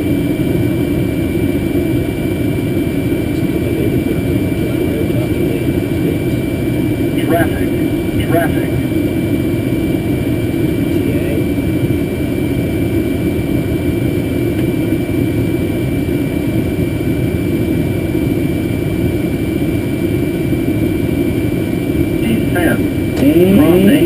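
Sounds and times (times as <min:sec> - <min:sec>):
cockpit rumble: 0:00.0 - 0:14.7
high steady whine: 0:00.0 - 0:24.0.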